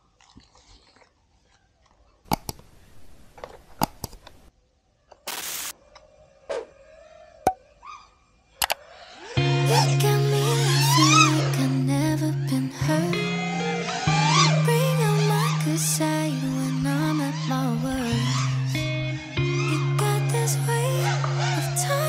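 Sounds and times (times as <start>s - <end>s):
sharp mouse clicks: 2.3s - 2.8s, 3.4s - 4.4s
background music: 9.4s - 22.0s.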